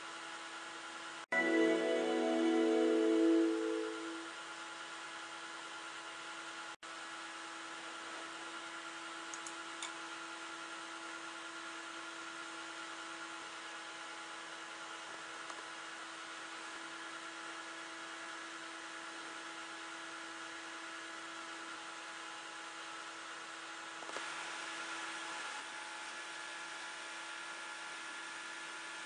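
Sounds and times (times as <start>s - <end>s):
computer fans whirring: 1.3s - 4.4s.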